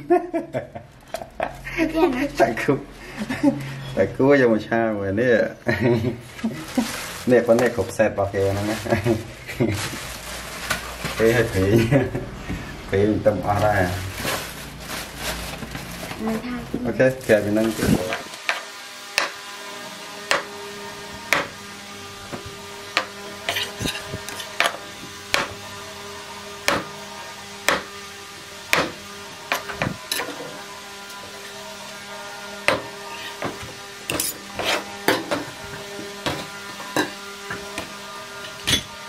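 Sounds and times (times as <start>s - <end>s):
steady humming tone: 8.4s - 39.0s.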